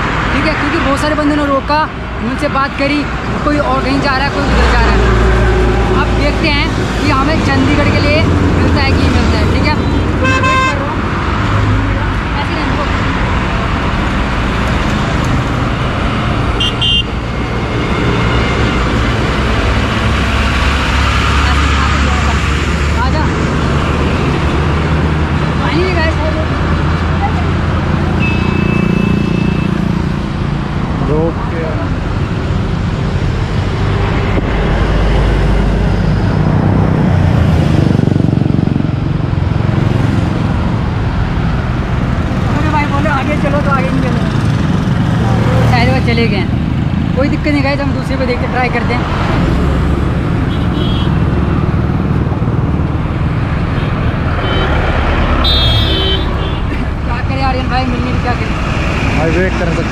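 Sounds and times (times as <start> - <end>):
highway traffic passing: 0.0 - 59.9
vehicle horn toots: 9.8 - 10.9, 16.6 - 17.2, 28.2 - 29.8, 50.5 - 51.2, 53.8 - 56.7.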